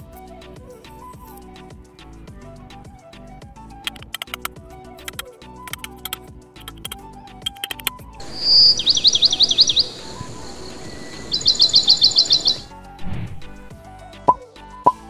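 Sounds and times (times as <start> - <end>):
light background music: 0.0 - 15.0
songbird trilling and chirping: 3.9 - 12.7.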